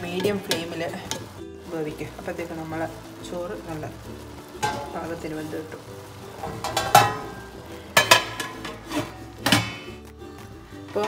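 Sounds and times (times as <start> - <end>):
metal lid clanking onto pot: 4.6 - 5.0, 6.4 - 10.0
metal ladle scraping a pot: 6.4 - 10.0.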